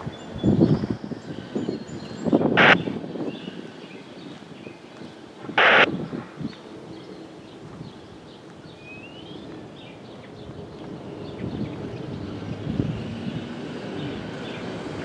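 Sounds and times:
vehicle engine hum: 0.0 - 5.9, 9.2 - 15.0
loud rushing noise: 2.5 - 2.9, 5.5 - 5.9.

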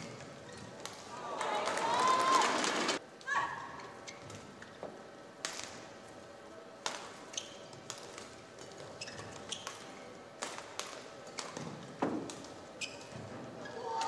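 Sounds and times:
shoes squeaking on court: 0.0 - 1.0, 7.2 - 10.1, 12.4 - 13.8
rackets hitting shuttlecock: 9.5 - 12.5.

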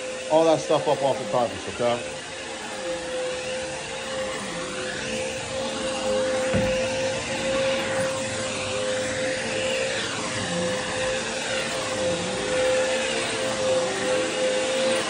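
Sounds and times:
vacuum cleaner on carpet: 0.0 - 15.0.

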